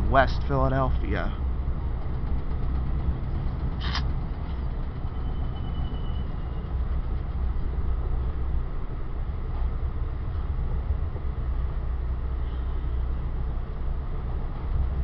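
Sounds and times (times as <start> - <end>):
rail car rumbling on track: 0.0 - 15.0
sharp squeak: 3.8 - 6.8
faint thin squeal: 5.1 - 6.8.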